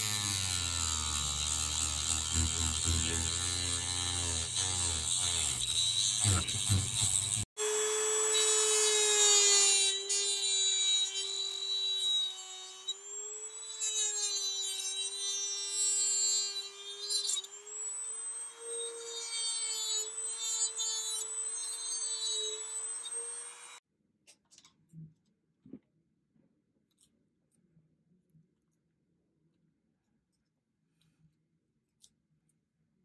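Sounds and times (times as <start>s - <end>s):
rotary tool grinding: 0.0s - 23.8s
rotary tool motor whine: 0.0s - 23.8s.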